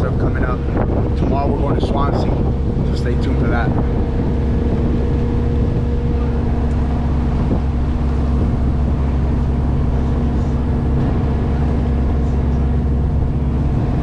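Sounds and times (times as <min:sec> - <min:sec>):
boat engine droning: 0:00.0 - 0:14.0
water rushing along hull: 0:00.0 - 0:14.0.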